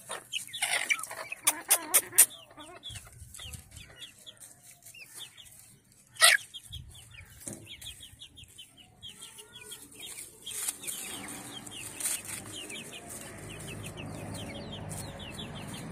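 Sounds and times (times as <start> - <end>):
chicken squawking: 0.0 - 3.2, 6.2 - 6.7
chickens clucking: 0.0 - 15.9
chicks peeping: 0.0 - 15.9
rustling: 10.0 - 13.9.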